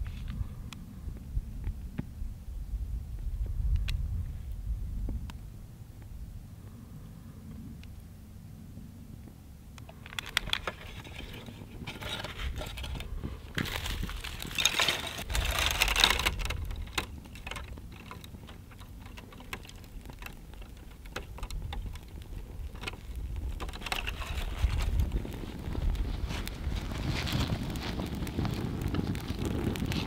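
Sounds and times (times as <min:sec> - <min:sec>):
kindling fire crackling: 0:09.0 - 0:30.0
dry twigs rustling and snapping: 0:09.8 - 0:30.0.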